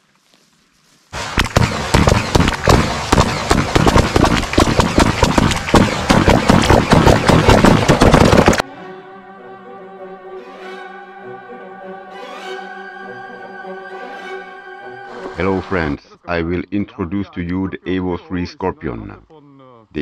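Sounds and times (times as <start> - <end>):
rifles firing rapidly: 1.2 - 8.6
orchestral string music: 8.6 - 16.0.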